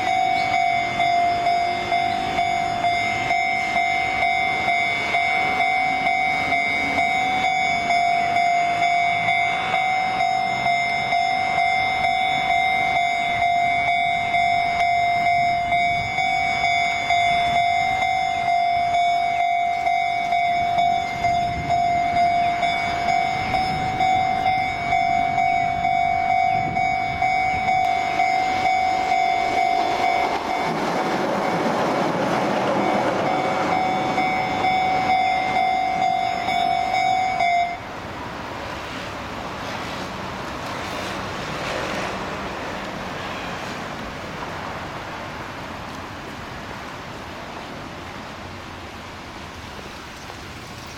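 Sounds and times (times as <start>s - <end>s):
level crossing alarm dinging: 0.0s - 37.9s
road traffic noise: 0.0s - 50.9s
train rumbling: 0.0s - 50.9s.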